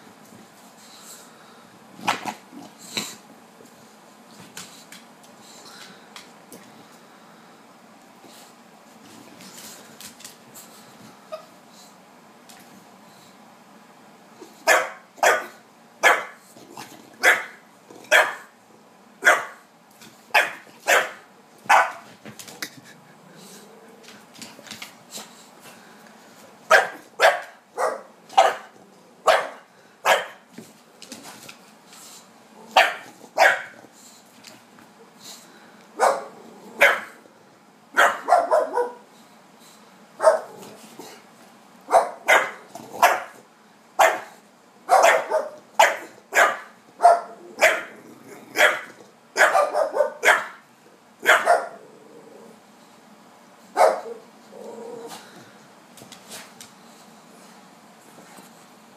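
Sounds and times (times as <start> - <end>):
dog barking: 14.6 - 16.4, 17.2 - 18.5, 19.2 - 19.6, 20.3 - 22.0, 26.7 - 30.4, 32.8 - 33.8, 36.0 - 37.2, 38.0 - 39.0, 40.2 - 40.6, 41.9 - 43.4, 44.0 - 47.9, 48.6 - 50.6, 51.2 - 51.8, 53.8 - 54.2.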